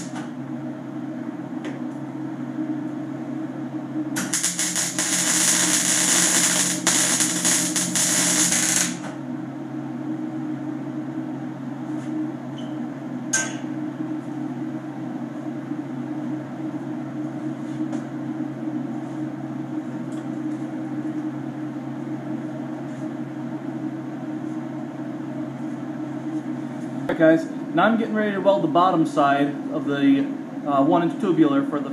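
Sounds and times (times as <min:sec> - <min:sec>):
welding arc crackling: 0:00.0 - 0:00.2, 0:04.2 - 0:09.2
steady low hum: 0:00.0 - 0:31.9.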